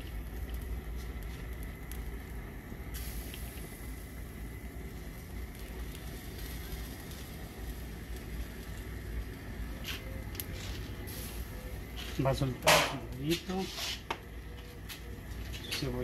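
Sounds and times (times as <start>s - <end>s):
hiss: 2.9s - 4.6s.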